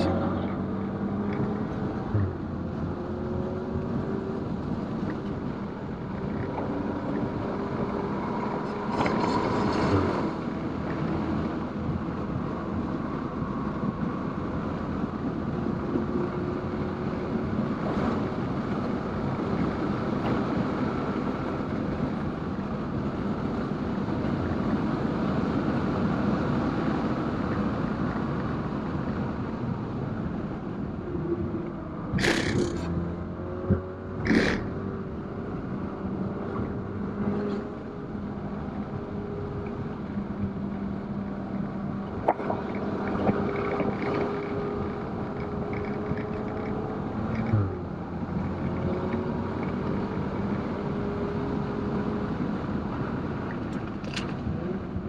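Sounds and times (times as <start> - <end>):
road and wind noise: 0.0 - 55.0
car engine revving: 32.0 - 55.0.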